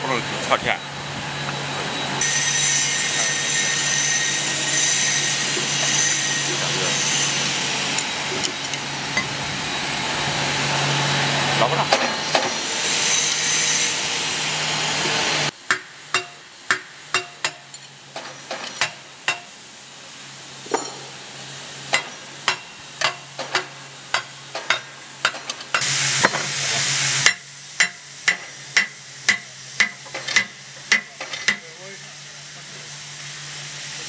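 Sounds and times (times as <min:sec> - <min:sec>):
loud steady hiss: 0:00.0 - 0:34.0
hammer tapping on steel: 0:15.7 - 0:17.8, 0:27.2 - 0:31.7.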